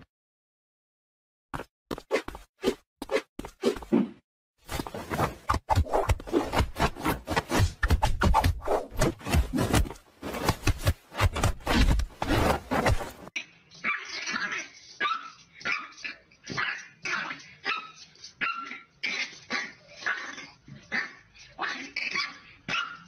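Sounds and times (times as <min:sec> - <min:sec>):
kitten scraping wooden box: 0:05.1 - 0:13.3
puppy barking high-pitched: 0:13.8 - 0:23.0.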